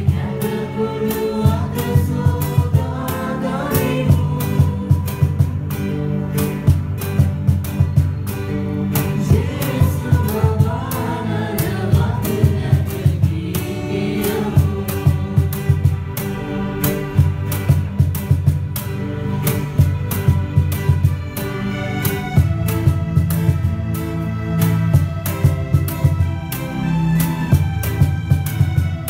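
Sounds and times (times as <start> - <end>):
group of voices singing a carol: 0.0 - 5.9, 9.0 - 16.6
band with steady drum beat: 0.0 - 29.0.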